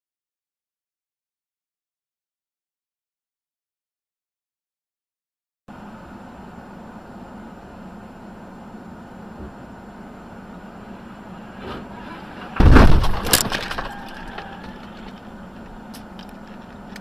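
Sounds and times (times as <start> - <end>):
car driving hum: 5.7 - 17.0
car crash impact: 11.5 - 15.2
cracking and breaking clatter: 12.4 - 17.0.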